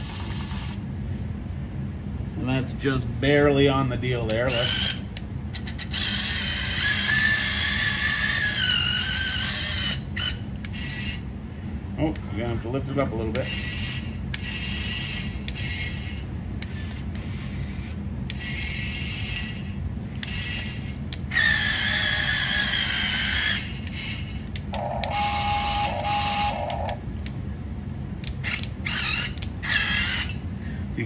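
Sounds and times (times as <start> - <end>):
steady low hum: 0.0 - 31.0
small electric motors whining: 4.3 - 11.3, 13.4 - 27.0, 28.2 - 30.4.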